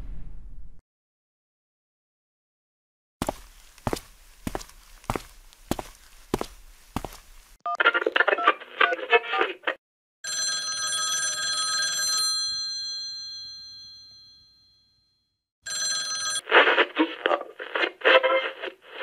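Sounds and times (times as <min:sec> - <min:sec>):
telephone bell ringing: 0:10.2 - 0:16.5
thin telephone-like voice: 0:16.1 - 0:19.0.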